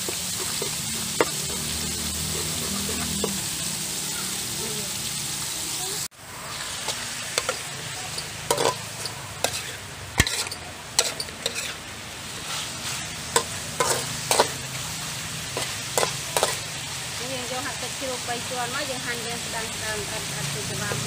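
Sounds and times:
metal spatula scraping a pan: 0.0 - 3.6, 6.6 - 14.7, 15.5 - 16.8
meat sizzling in a wok: 0.0 - 21.0.

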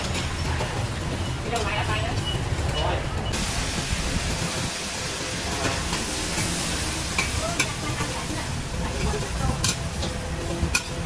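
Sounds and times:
noodles sizzling on griddle: 3.3 - 11.0.

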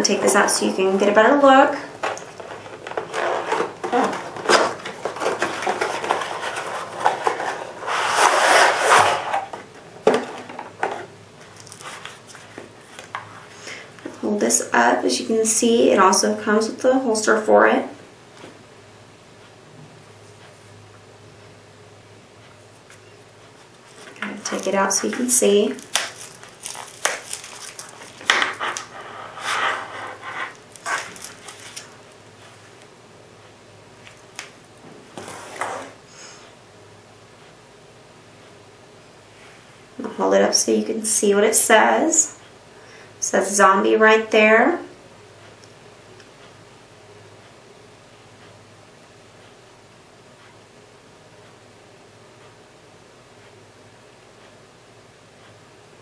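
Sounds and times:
cardboard rubbing and sliding: 2.4 - 9.6, 26.2 - 31.8, 35.2 - 36.0
knife sheath rustling and scraping: 4.4 - 9.6, 25.9 - 31.9
knife sliding out of box: 5.4 - 9.5.

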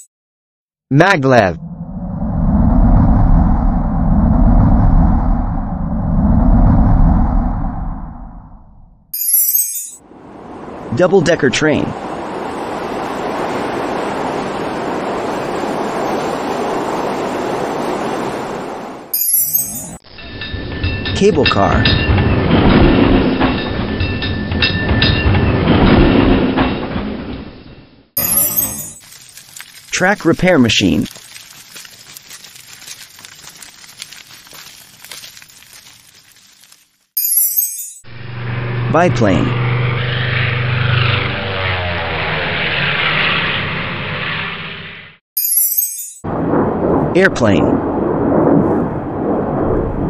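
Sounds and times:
train passing at speed: 10.0 - 19.1
ballast stones rattling: 28.2 - 37.5.

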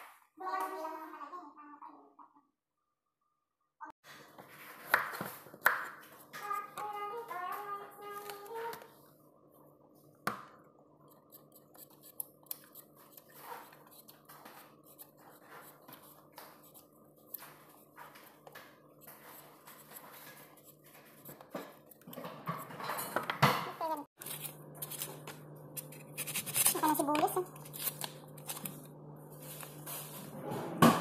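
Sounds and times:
knife cutting carrot: 11.1 - 17.5, 24.2 - 28.8.

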